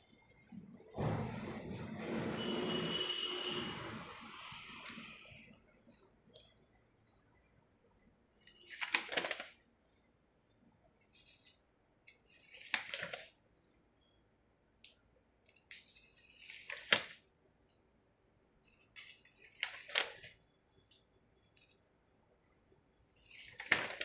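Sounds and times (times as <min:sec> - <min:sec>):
paper pages being turned: 0:08.4 - 0:09.6, 0:11.0 - 0:13.4, 0:15.5 - 0:17.2, 0:18.7 - 0:21.0, 0:23.1 - 0:24.0
paper rustling: 0:08.4 - 0:10.0, 0:11.0 - 0:13.8, 0:15.5 - 0:17.2, 0:18.6 - 0:21.0, 0:23.1 - 0:24.0.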